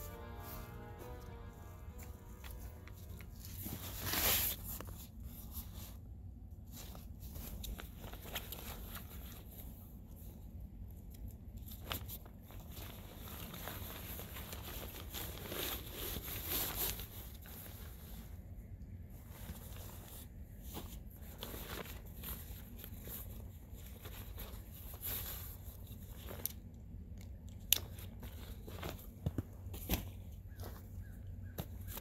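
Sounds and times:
nylon fabric rustling: 0:00.0 - 0:06.0, 0:06.6 - 0:10.4, 0:11.6 - 0:26.5.

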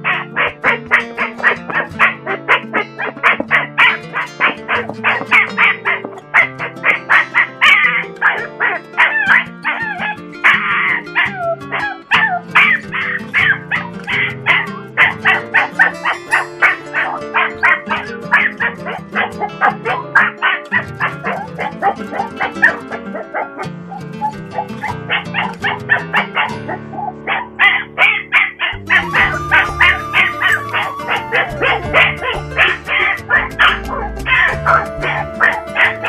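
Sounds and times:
dog whining: 0:00.0 - 0:36.0
small dog yipping: 0:00.0 - 0:36.0
music with held low notes: 0:28.8 - 0:36.0.

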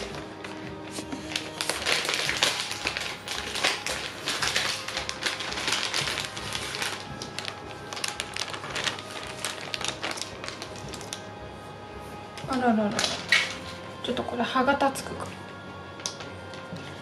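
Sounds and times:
plastic packaging crinkling: 0:00.0 - 0:11.4.

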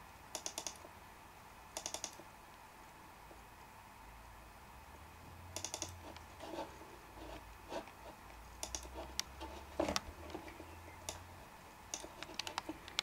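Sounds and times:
low steady hum: 0:00.0 - 0:13.0
computer keys and mouse clicks: 0:00.3 - 0:00.9, 0:01.8 - 0:02.3, 0:05.6 - 0:06.3, 0:08.6 - 0:11.3, 0:11.9 - 0:13.0.

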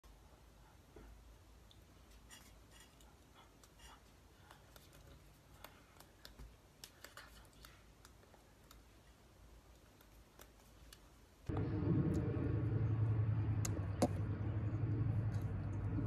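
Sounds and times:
hands clicking and brushing: 0:02.1 - 0:11.5.

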